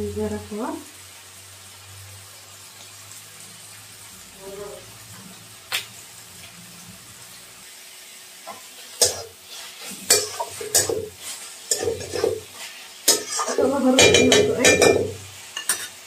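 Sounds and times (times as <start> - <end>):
faint sizzle: 0.0 - 16.0
metal spatula scraping pan: 8.5 - 16.0.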